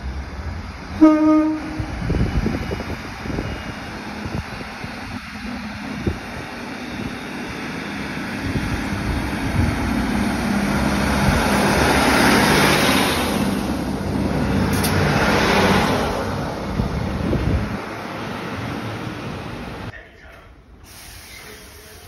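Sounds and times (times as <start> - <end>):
diesel engines humming: 0.0 - 19.9
train wheels rumbling on rails: 0.0 - 20.4.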